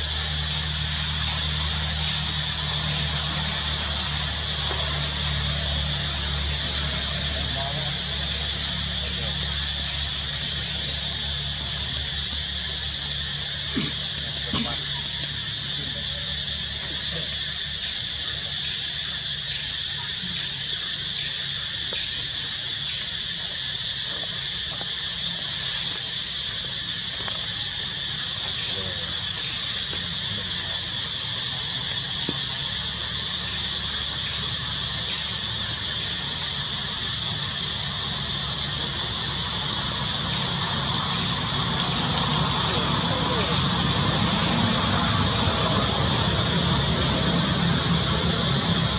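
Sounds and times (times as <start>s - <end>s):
high-pitched hissing drone: 0.0s - 48.9s
low hum: 32.5s - 48.9s.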